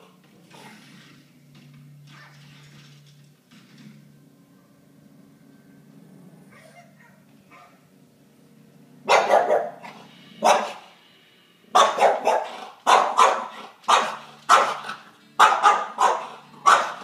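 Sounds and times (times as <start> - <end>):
dog barking: 6.6 - 7.9, 9.0 - 10.9, 11.7 - 17.0.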